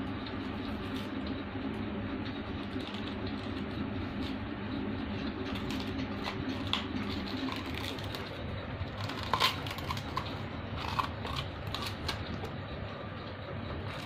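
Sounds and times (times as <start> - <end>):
steady low hum: 0.0 - 14.0
dog chewing dry husks: 5.1 - 12.6.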